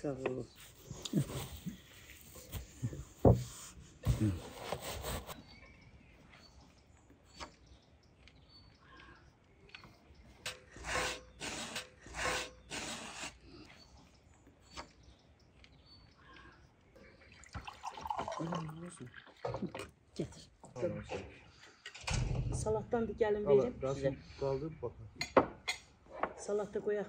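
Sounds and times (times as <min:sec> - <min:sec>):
cloth rasping and rustling: 0:00.5 - 0:05.4.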